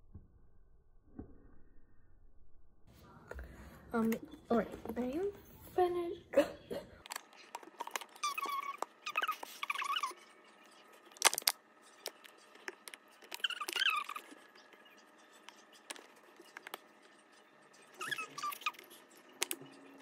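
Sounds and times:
squeeze bottle valve squeaks: 7.4s - 10.4s, 13.1s - 19.9s
plastic clicks and crackles: 11.1s - 14.7s.

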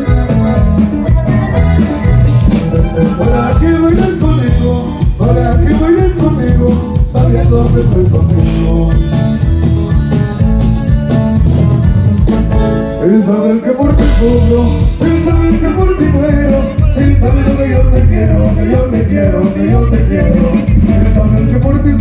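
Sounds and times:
live band with strings and bass: 0.0s - 22.0s
person singing: 2.8s - 10.4s, 12.9s - 22.0s.

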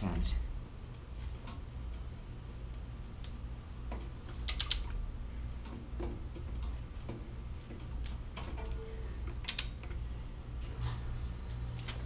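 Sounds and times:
torque wrench ratchet clicks: 4.4s - 4.9s, 9.4s - 9.8s.

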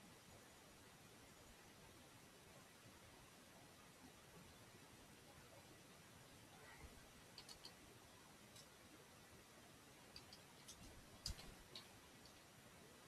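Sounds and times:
computer keyboard keystrokes: 7.4s - 7.8s, 10.2s - 12.4s.

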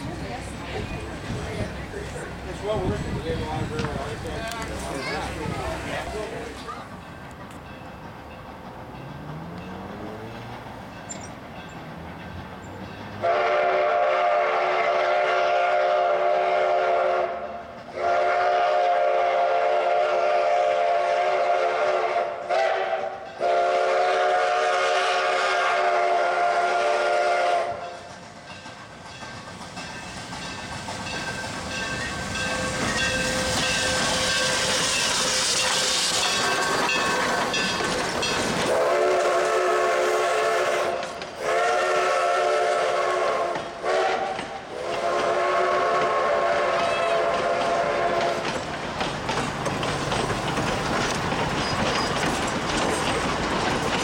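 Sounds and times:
rush of steam and running noise: 0.0s - 54.0s
steam locomotive whistle: 13.2s - 28.0s, 31.7s - 37.4s, 38.6s - 48.6s.

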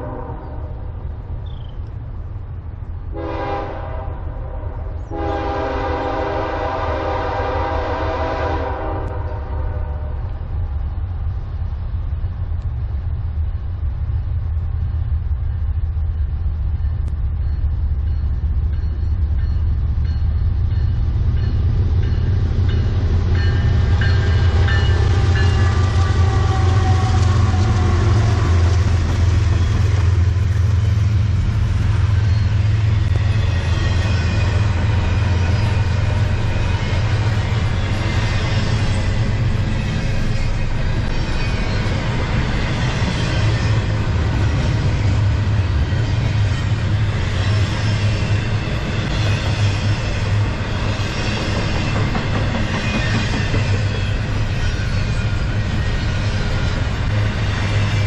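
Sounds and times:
locomotive horn: 0.0s - 0.9s, 3.1s - 10.4s, 23.4s - 30.8s
diesel locomotive engine rumble: 0.0s - 58.0s
freight cars rattling over rails: 17.4s - 58.0s.

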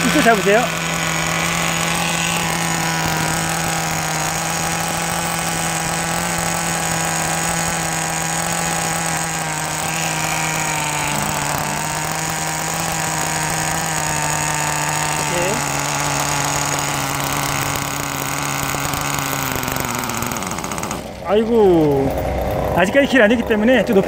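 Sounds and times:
small engine idling: 0.0s - 24.0s.

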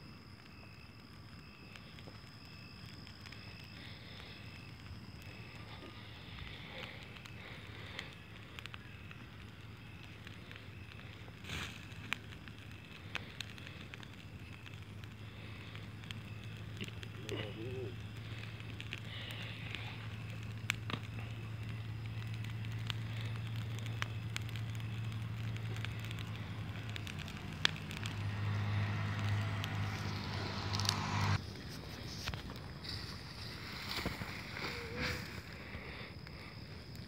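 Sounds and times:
bonfire crackling and popping: 0.0s - 37.0s
low motor hum: 18.0s - 31.4s.

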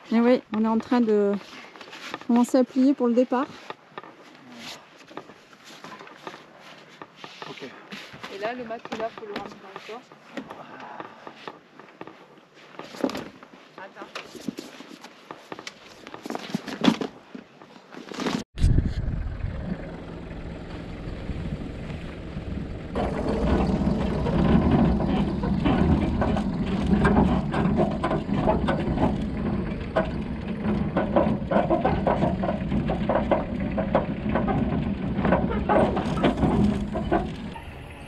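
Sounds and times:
knocks and rattles over rough ground: 0.0s - 38.0s
van engine and tyre rumble: 18.6s - 38.0s.

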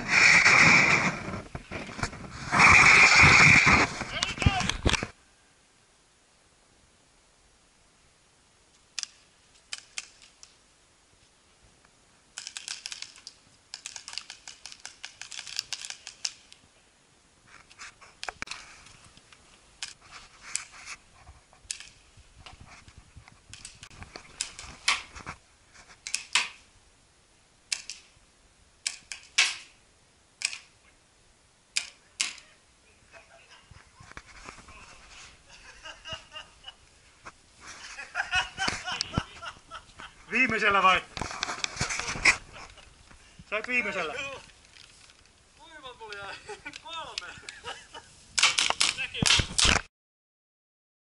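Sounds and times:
paintball markers firing: 12.4s - 16.6s, 27.7s - 28.1s, 28.8s - 29.7s, 31.8s - 32.4s, 48.4s - 49.8s.

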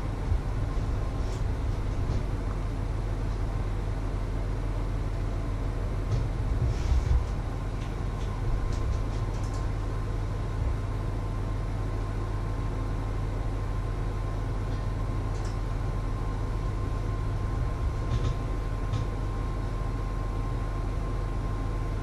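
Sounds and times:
low machine hum: 0.0s - 22.0s.

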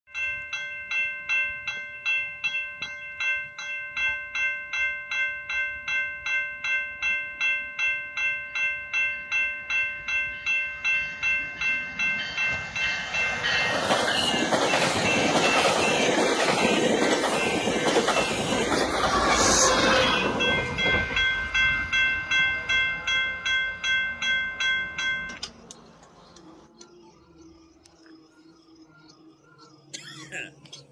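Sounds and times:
level crossing bell ringing: 0.1s - 16.2s, 19.6s - 25.4s
train wheels on rails: 9.0s - 27.0s.

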